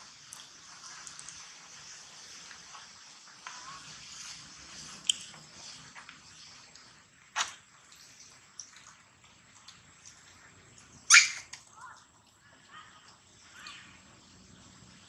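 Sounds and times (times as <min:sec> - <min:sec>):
baby monkey squealing: 0:11.1 - 0:11.6.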